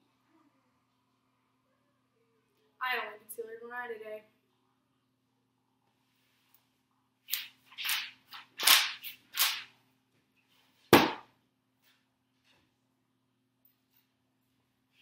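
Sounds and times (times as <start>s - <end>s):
book slapping on table: 10.9s - 11.3s.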